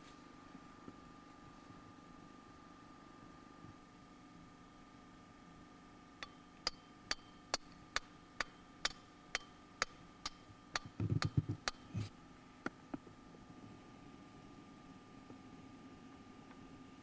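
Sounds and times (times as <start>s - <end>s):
hammer striking metal: 6.2s - 11.8s.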